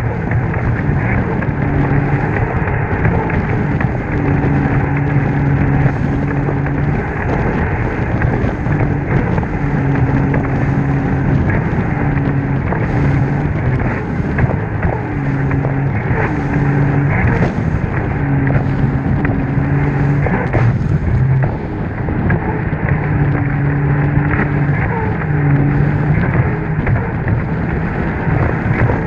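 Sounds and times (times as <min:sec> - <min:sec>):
jet ski engine drone: 0:00.0 - 0:29.0
wind and spray rushing: 0:00.0 - 0:29.0.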